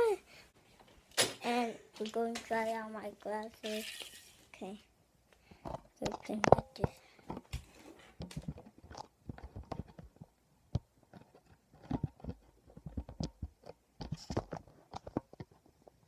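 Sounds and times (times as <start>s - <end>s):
phone handling clicks and rustles: 5.6s - 16.0s.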